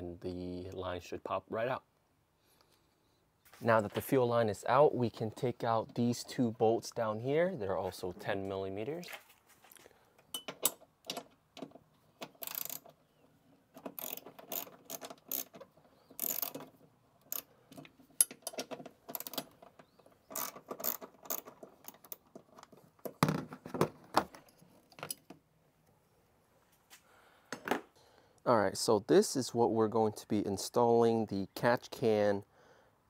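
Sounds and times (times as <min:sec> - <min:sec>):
hand ratchet clicking: 0:12.2 - 0:13.0, 0:13.8 - 0:19.6, 0:20.3 - 0:22.2.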